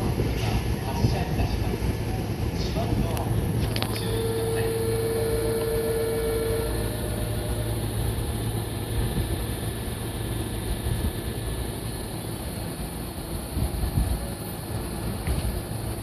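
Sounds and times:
electric train humming: 0.0 - 16.0
steady tone: 3.8 - 14.8.

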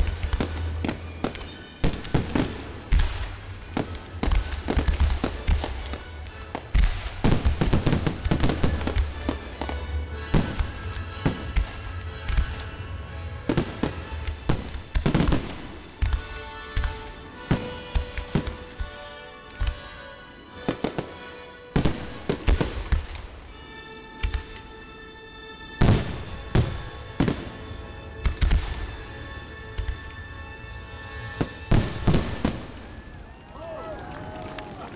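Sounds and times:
fireworks bursting with sharp bangs: 0.0 - 20.0, 20.6 - 24.7, 25.8 - 30.1, 31.2 - 33.5
music playing: 0.0 - 34.9.

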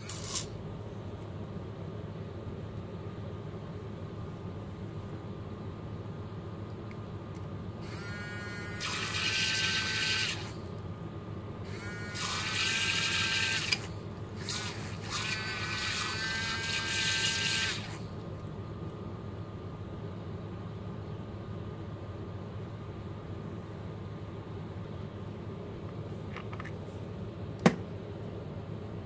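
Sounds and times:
steady low hum: 0.0 - 29.0
small motor whirring: 7.8 - 10.6, 11.7 - 18.1.

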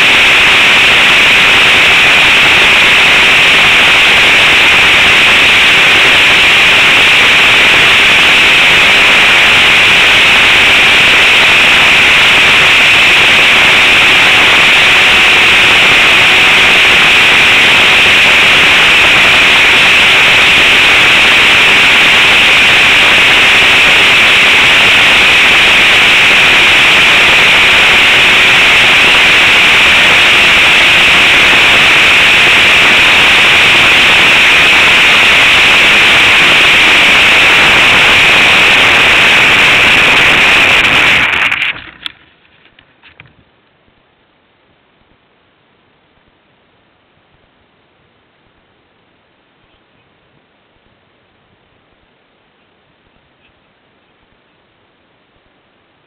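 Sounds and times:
model airplane motor rushing: 0.0 - 42.2
faint steady hum: 0.0 - 56.0.

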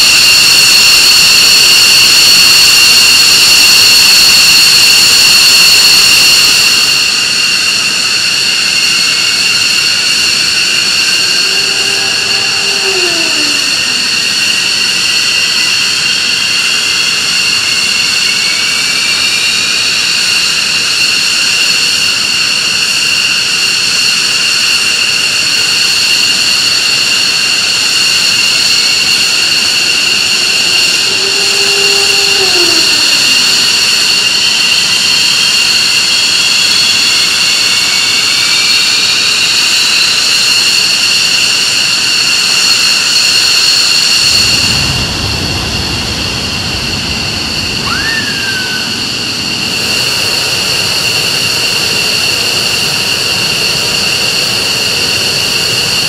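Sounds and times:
jet engines idling whine: 0.0 - 56.0
tone rising in pitch: 10.6 - 14.8, 29.1 - 34.4, 44.0 - 49.7
low rumble: 44.0 - 49.8.

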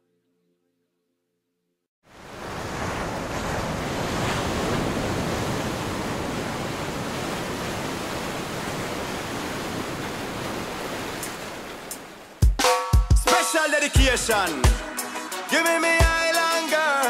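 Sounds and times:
sea waves washing: 2.1 - 12.6
wind rumbling on microphone: 2.2 - 11.9.

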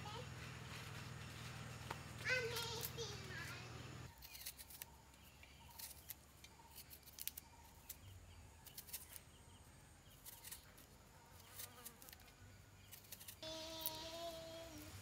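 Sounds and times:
knife scraping pod skin: 4.1 - 9.4, 10.0 - 14.0.

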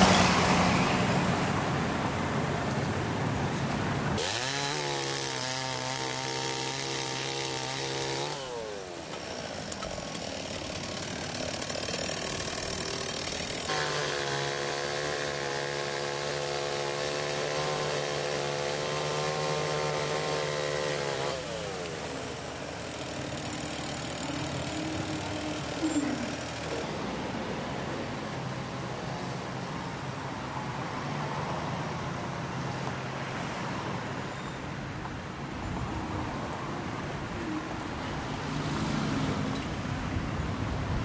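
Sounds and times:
diesel engine revving: 0.0 - 2.6, 4.1 - 27.6.

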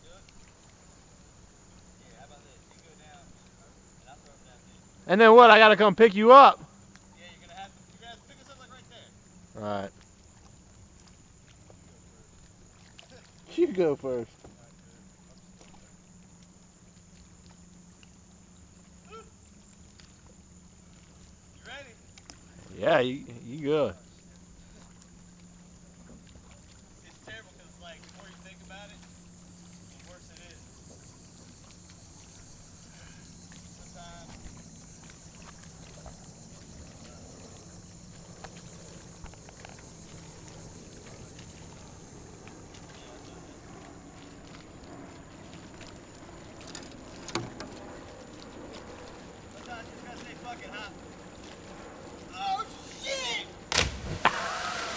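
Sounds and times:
steady low hum: 6.6 - 54.9
faint ticks: 6.8 - 7.2, 14.4 - 19.0, 19.6 - 22.5, 27.9 - 41.7
distant pitched call: 52.3 - 54.9
high hiss: 52.3 - 54.9.

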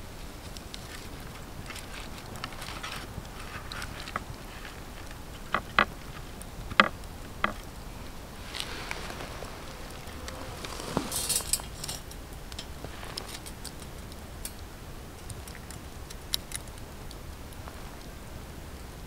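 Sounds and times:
wire grilling basket clinking: 7.4 - 16.8.

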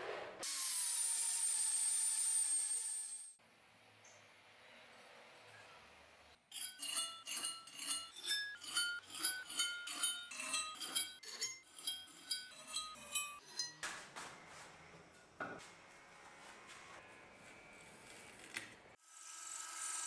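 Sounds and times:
faint workshop noise: 0.0 - 20.0
scrape: 6.6 - 13.7.

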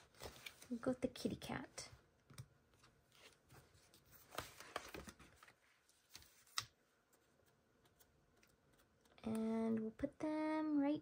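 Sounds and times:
paper rustling and tapping: 2.3 - 9.4.

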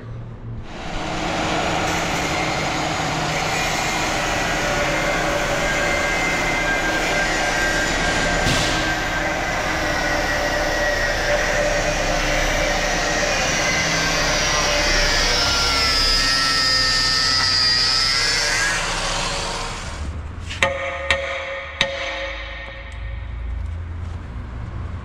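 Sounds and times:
angle grinder cutting steel: 0.7 - 20.1.

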